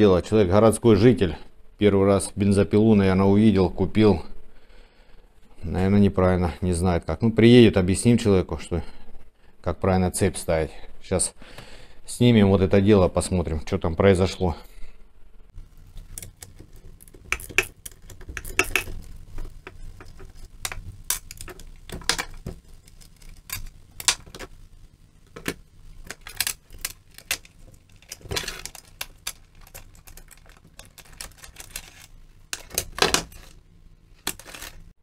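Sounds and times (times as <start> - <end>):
metallic clicks and clinks: 15.8 - 24.6.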